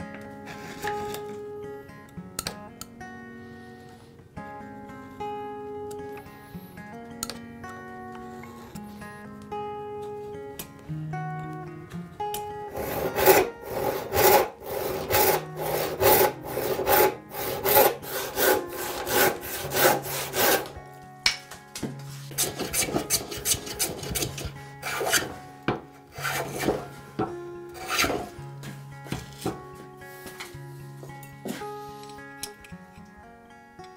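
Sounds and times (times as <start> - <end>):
hand plane shaving board: 12.7 - 20.8, 21.8 - 29.6
hand saw cutting log: 12.7 - 20.8, 22.2 - 27.0, 27.8 - 28.4.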